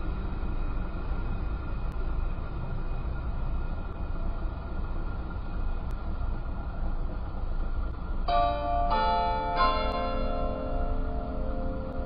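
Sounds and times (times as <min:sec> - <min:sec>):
low background rumble: 0:00.0 - 0:12.0
tower bells ringing: 0:08.3 - 0:12.0.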